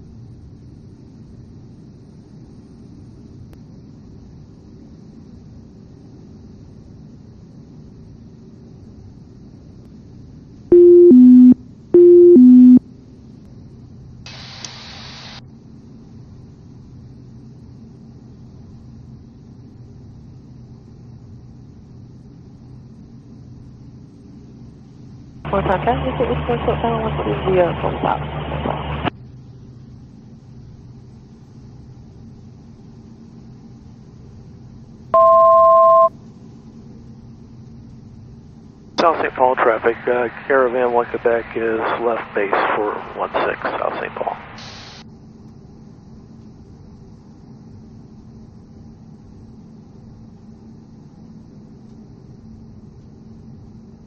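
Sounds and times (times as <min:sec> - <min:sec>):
two-note electronic alert tone: 0:10.7 - 0:12.8
burst of hiss: 0:14.3 - 0:15.4, 0:44.6 - 0:45.0
turboprop engine hum: 0:25.5 - 0:29.2.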